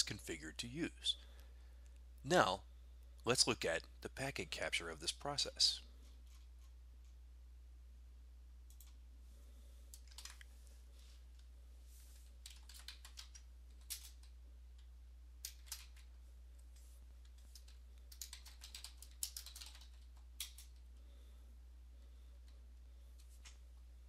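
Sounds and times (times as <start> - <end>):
faint low hum: 0.0 - 24.0
keyboard typing clicks: 12.4 - 14.3, 17.3 - 20.8.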